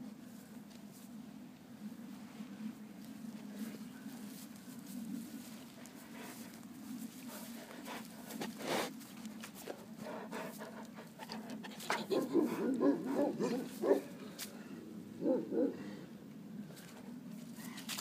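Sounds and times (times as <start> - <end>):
crackling in dry leaves: 2.4 - 14.8, 16.6 - 18.0.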